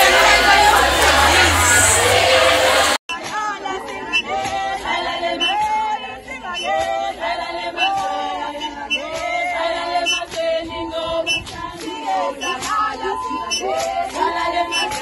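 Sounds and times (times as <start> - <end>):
sharp beat: 0.0 - 3.0
group singing chant-like melody: 0.0 - 15.0.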